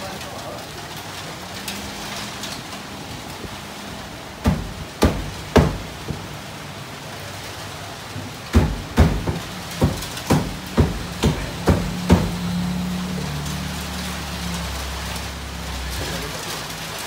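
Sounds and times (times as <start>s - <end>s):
heavy rain falling: 0.0s - 17.0s
loud sharp knocks: 4.4s - 6.3s, 8.5s - 12.5s.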